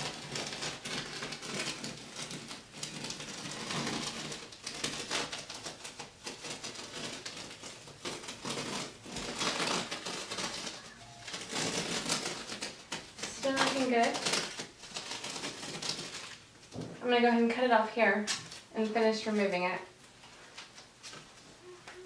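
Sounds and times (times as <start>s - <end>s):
tape peeling off wall: 0.0s - 17.6s.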